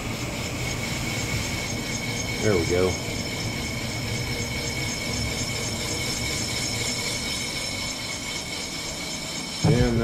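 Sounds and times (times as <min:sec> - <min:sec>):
boring machine hum and whine: 0:00.0 - 0:10.0.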